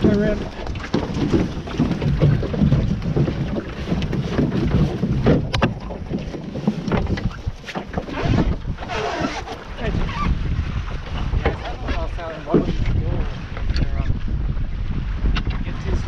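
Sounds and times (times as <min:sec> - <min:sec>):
water rushing along hull: 0:00.0 - 0:16.0
wind buffeting microphone: 0:00.0 - 0:16.0
knocks from lines and gear: 0:00.8 - 0:08.6.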